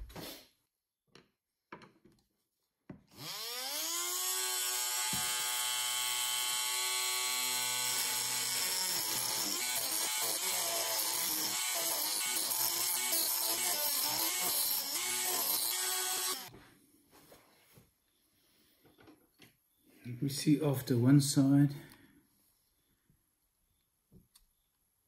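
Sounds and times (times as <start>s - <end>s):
rotary tool motor whine: 3.2s - 16.5s.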